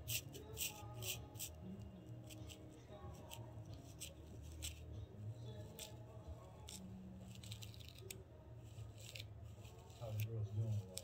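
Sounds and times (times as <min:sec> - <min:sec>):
comb scratching scalp: 0:00.0 - 0:01.6, 0:02.2 - 0:04.9, 0:06.6 - 0:11.0.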